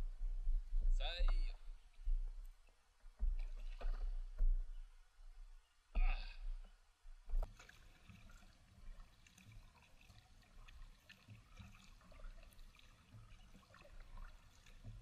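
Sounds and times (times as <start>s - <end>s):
kayak paddle splashing water: 3.2s - 4.4s, 7.4s - 15.0s.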